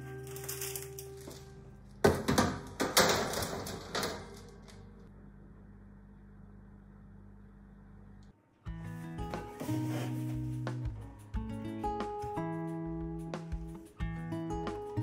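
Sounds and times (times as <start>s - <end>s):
low steady hum: 0.0s - 8.6s
metal baking tray clattering: 2.1s - 4.6s.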